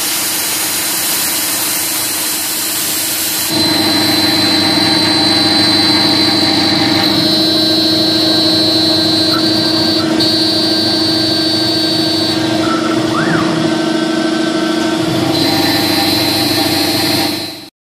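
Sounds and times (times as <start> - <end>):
engraving bit cutting: 3.0 - 17.7
high whining tones: 3.4 - 17.7
router spindle humming: 3.5 - 17.7.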